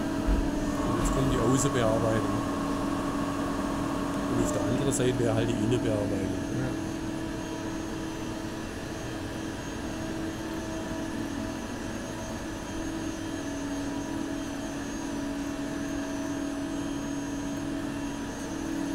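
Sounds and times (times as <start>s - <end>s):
lathe machine hum: 0.0s - 18.9s.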